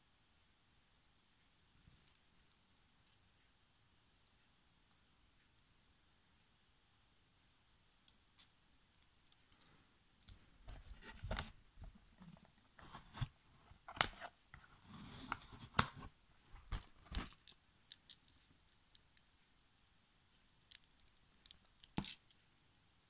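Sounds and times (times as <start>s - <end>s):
cardboard rustling: 10.6s - 17.4s.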